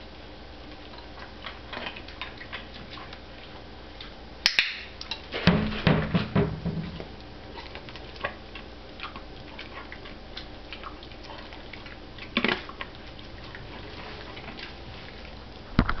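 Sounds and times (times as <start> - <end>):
dog chewing and licking lips: 0.6 - 4.2, 7.0 - 15.7.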